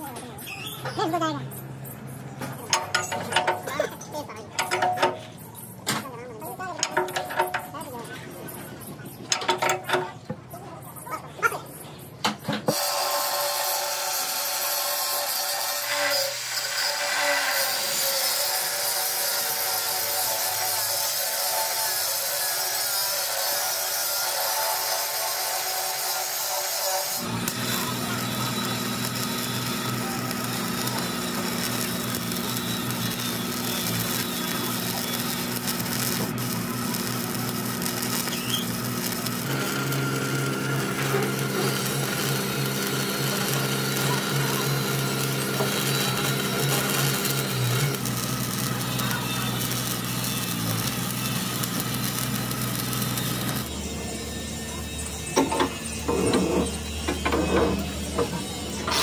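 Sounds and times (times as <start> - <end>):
welding set hum: 0.2 - 5.8, 6.4 - 10.2, 12.7 - 59.0
welding arc crackling: 12.7 - 53.8.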